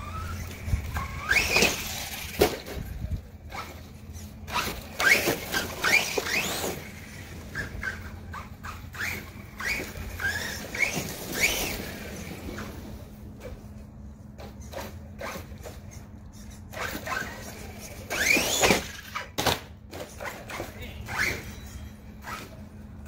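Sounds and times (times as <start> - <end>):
rc truck motor whining: 0.0 - 23.0.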